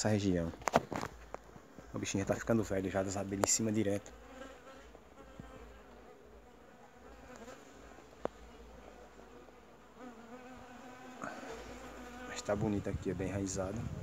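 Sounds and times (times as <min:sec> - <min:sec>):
bees buzzing: 0:01.4 - 0:14.0.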